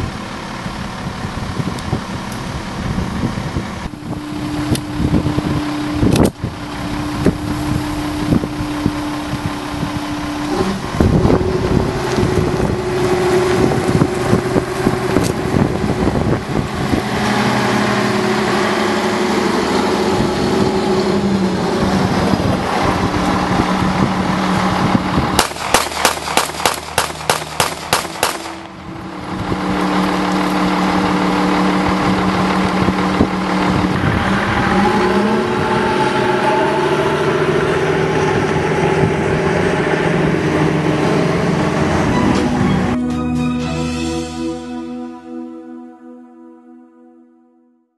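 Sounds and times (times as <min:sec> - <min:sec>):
diesel engine running: 0:00.0 - 0:45.6
rapid pistol shots: 0:25.4 - 0:28.6.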